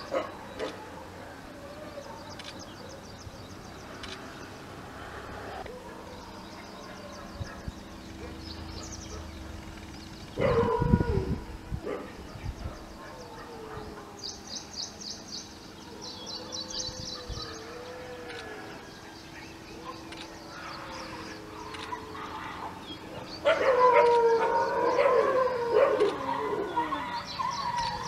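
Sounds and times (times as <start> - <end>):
dog howling and whining: 10.4 - 11.5, 20.6 - 28.0.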